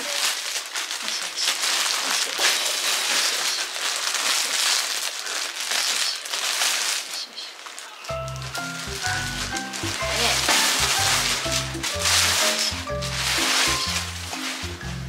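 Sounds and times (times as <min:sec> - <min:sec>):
plastic bag crinkling: 0:00.0 - 0:14.8.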